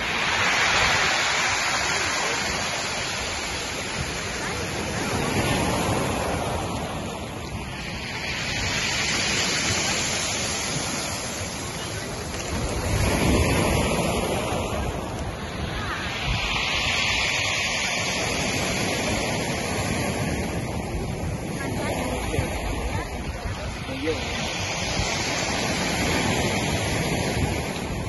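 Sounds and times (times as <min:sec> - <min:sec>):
surf on pebble beach: 0:00.0 - 0:28.0.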